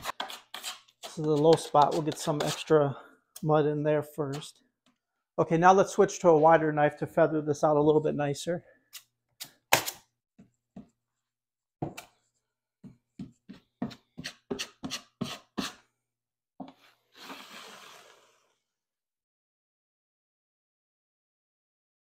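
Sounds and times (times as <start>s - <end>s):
taping knife scraping compound: 0.0s - 3.5s, 13.5s - 15.9s, 16.8s - 18.6s.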